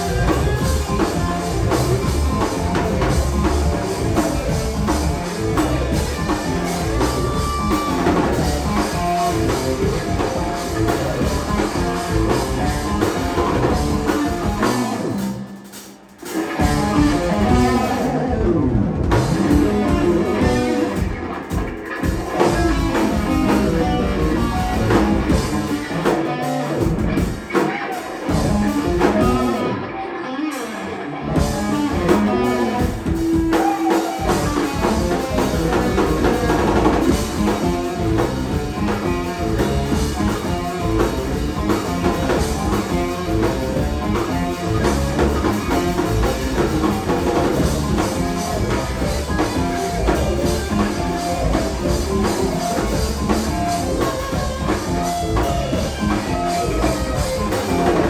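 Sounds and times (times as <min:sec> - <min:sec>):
bass guitar: 0:00.0 - 0:58.0
drum kit: 0:00.0 - 0:58.0
electric guitar: 0:00.0 - 0:58.0
keyboards: 0:00.0 - 0:58.0.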